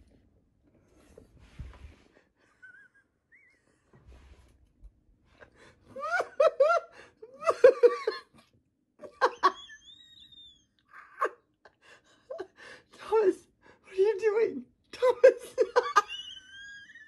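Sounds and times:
person laughing: 0:05.9 - 0:08.4.

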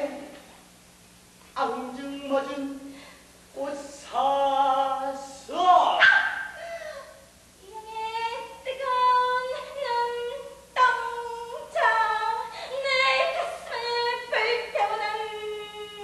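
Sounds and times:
woman singing wordless notes: 0:01.6 - 0:06.0, 0:07.6 - 0:16.0.

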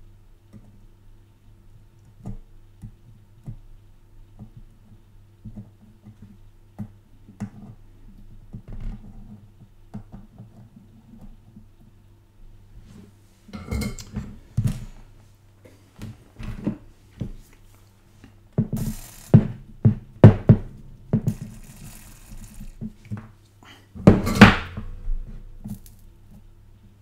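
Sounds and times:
steady low hum: 0:00.0 - 0:27.0.

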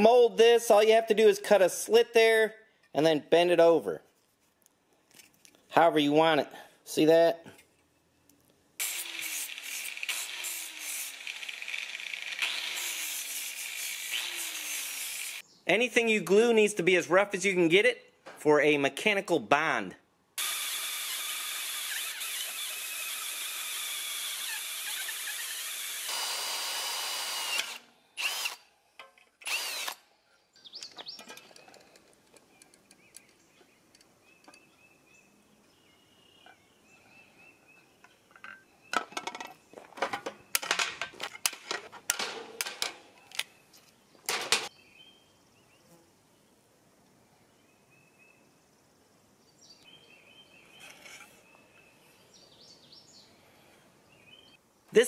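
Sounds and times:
pneumatic drill boring into metal: 0:08.8 - 0:15.4, 0:20.4 - 0:28.6, 0:29.4 - 0:30.0
clicks of metal parts and tools: 0:29.0 - 0:29.5, 0:30.8 - 0:34.6, 0:38.0 - 0:43.5, 0:44.2 - 0:44.7.

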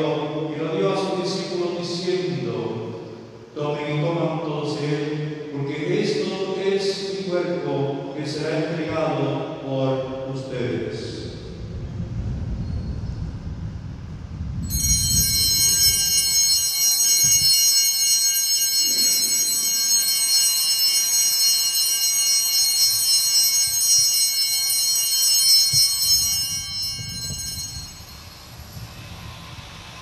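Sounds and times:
altar bells jangling: 0:14.7 - 0:28.9.

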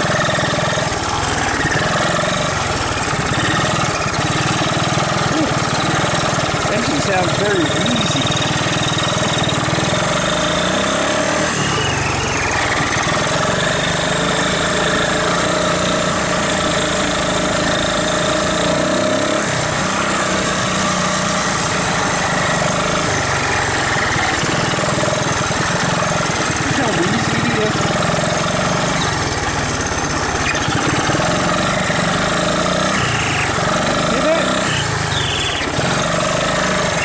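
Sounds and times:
three-wheeler engine running: 0:00.0 - 0:37.0
steady squeal: 0:05.7 - 0:16.2, 0:28.7 - 0:33.8, 0:34.6 - 0:37.0.

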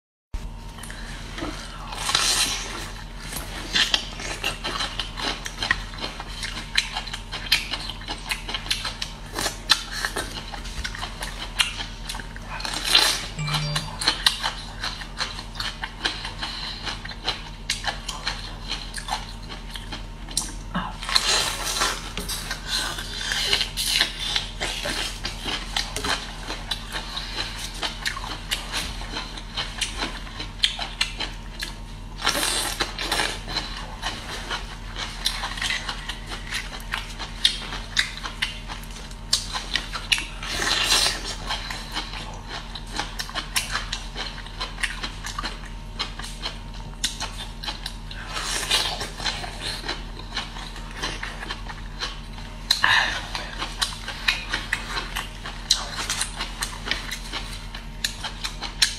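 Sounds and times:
chewing and biting: 0:00.8 - 0:58.9
low hum: 0:13.4 - 0:14.6.

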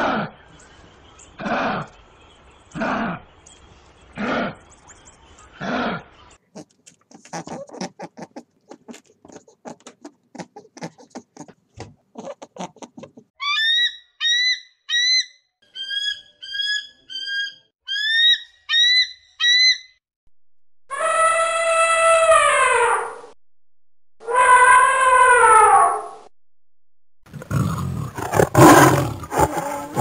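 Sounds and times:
elephant trumpeting: 0:27.4 - 0:30.0.

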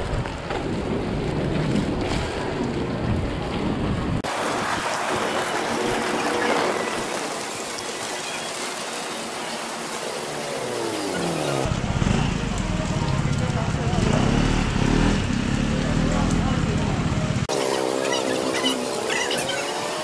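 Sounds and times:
wind rumble on microphone: 0:00.0 - 0:07.0
rain pattering on umbrella: 0:04.2 - 0:16.5
heavy rain hiss: 0:04.3 - 0:15.9.

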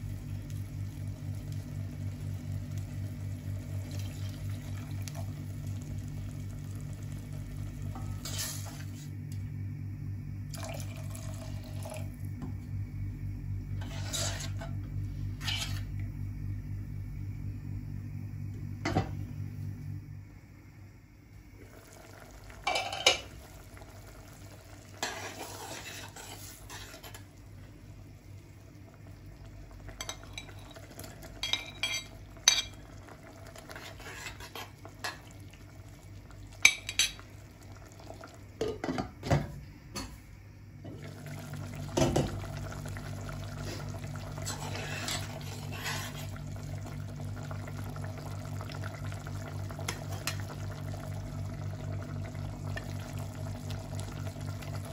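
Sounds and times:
steady low hum: 0:00.0 - 0:54.9
metal spoon stirring in a pot: 0:13.8 - 0:14.7.

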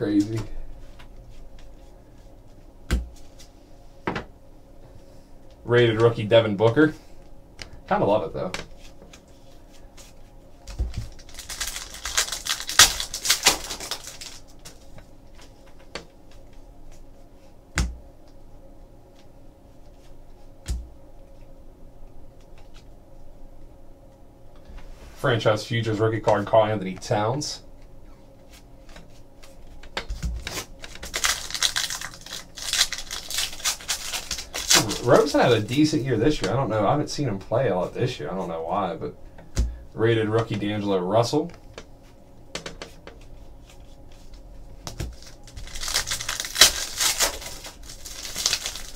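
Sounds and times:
cards flipping and rustling: 0:09.0 - 0:14.8, 0:28.9 - 0:35.7, 0:42.8 - 0:48.9
wrapper crinkling and tearing: 0:10.7 - 0:14.8, 0:30.4 - 0:35.8, 0:45.0 - 0:48.9.

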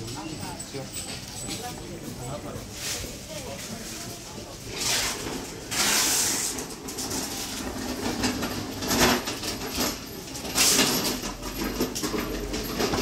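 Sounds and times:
hand truck rattling over tiles: 0:05.0 - 0:13.0.

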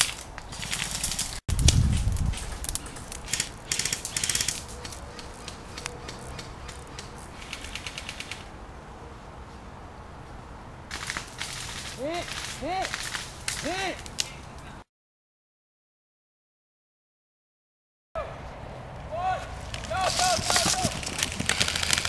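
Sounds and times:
airsoft rifles firing bursts: 0:02.3 - 0:08.5, 0:10.9 - 0:13.8.

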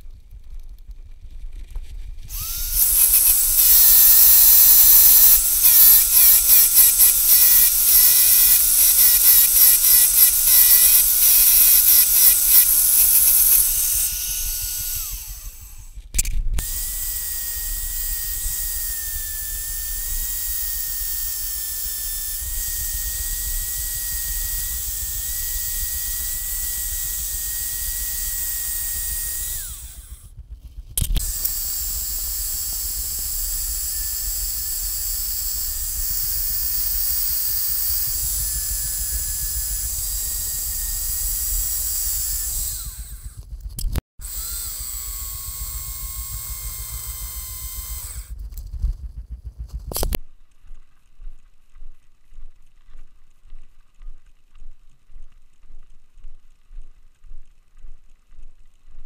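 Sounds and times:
electric drill spinning: 0:02.3 - 0:30.4, 0:31.0 - 0:48.4.

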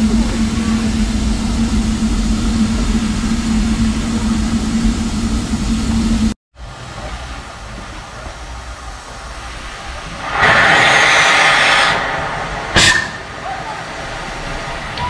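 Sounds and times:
steam locomotive rumble: 0:00.0 - 0:15.0
high-pitched whistle blast: 0:12.8 - 0:13.3.

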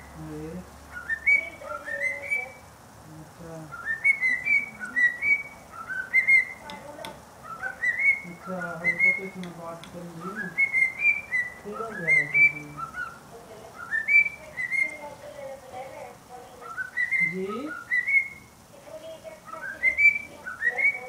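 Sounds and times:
cockatiel whistling: 0:00.9 - 0:02.6, 0:03.7 - 0:06.8, 0:07.4 - 0:09.4, 0:10.2 - 0:13.2, 0:13.8 - 0:15.0, 0:16.6 - 0:18.5, 0:19.5 - 0:21.0.

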